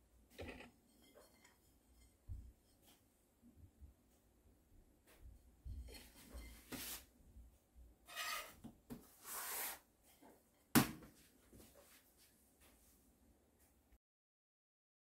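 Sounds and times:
ceramic plate moved about: 0:00.3 - 0:02.9, 0:05.7 - 0:07.1, 0:08.1 - 0:08.6
pizza slice scraping on peel: 0:08.1 - 0:08.6.

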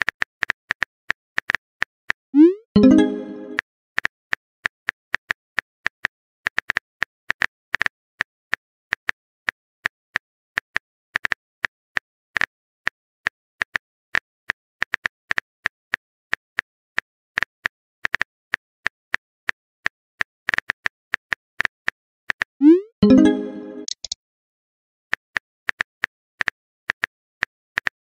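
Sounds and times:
message sent pop: 0:02.4 - 0:03.6, 0:22.6 - 0:24.2
phone keyboard key clicks: 0:23.8 - 0:24.2.

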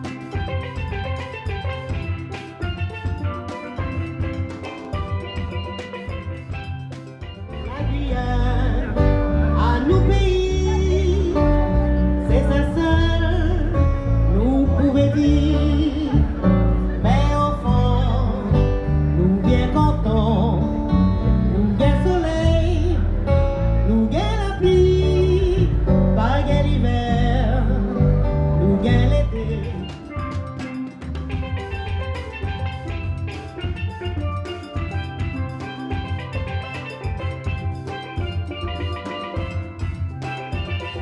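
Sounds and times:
acoustic guitars: 0:00.0 - 0:41.0
low bass line: 0:07.3 - 0:30.5
woman singing: 0:07.5 - 0:30.3.

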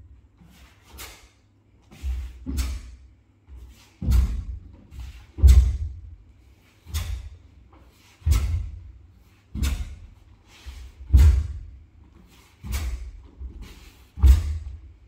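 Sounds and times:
bare feet stamping on wooden floor: 0:11.0 - 0:11.8, 0:12.6 - 0:14.8.

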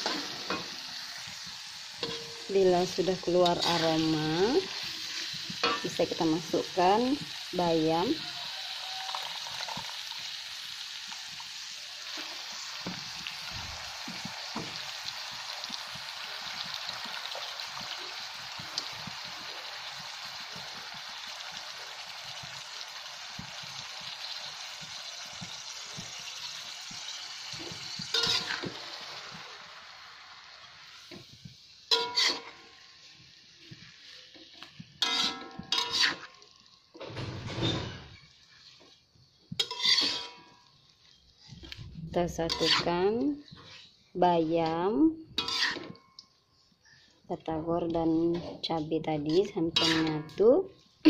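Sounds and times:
metal spatula scraping wok: 0:00.0 - 0:13.2, 0:24.6 - 0:29.4, 0:30.6 - 0:44.0, 0:44.6 - 0:46.1, 0:49.2 - 0:50.6
oil sizzling in a wok: 0:00.0 - 0:51.0.

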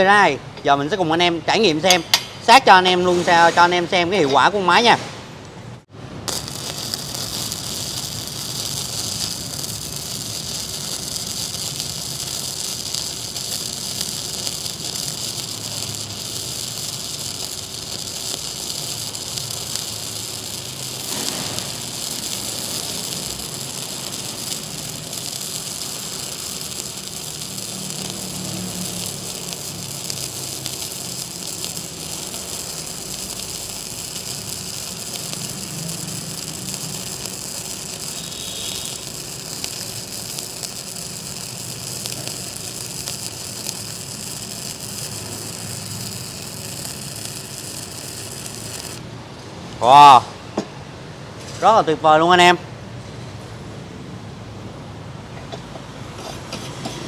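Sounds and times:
welding arc crackling: 0:05.8 - 0:50.2.

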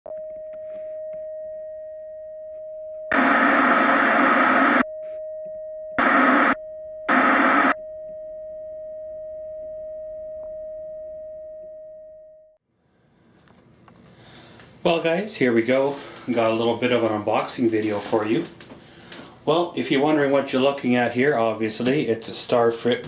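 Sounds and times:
steady test tone: 0:03.1 - 0:04.8, 0:06.0 - 0:07.8
tv static hiss: 0:03.1 - 0:04.8, 0:06.0 - 0:07.8.

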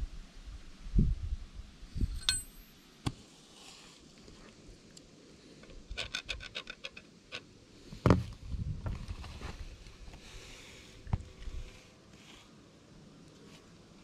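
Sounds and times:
metallic ring of valve: 0:02.0 - 0:02.7.

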